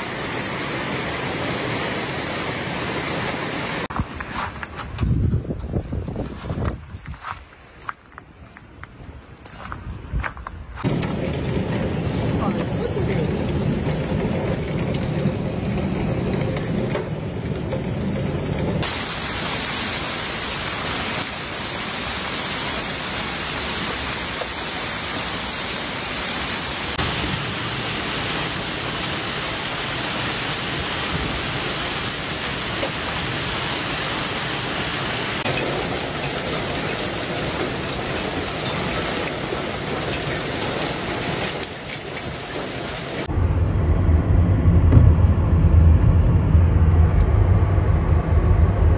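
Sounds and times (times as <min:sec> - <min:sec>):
hail and rain pelting down: 0:00.0 - 0:04.8, 0:09.4 - 0:43.3
vehicle road rumble: 0:00.0 - 0:21.6, 0:22.2 - 0:48.9.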